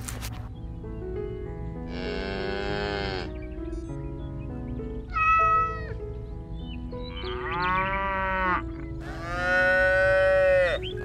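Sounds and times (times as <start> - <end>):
background music: 0.0 - 11.0
drawn-out animal calls: 7.1 - 11.0.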